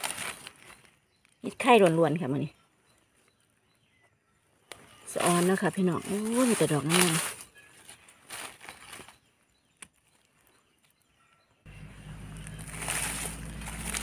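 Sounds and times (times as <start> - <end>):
rustling in dry leaves: 0.0 - 2.1, 4.7 - 9.3, 11.7 - 14.0.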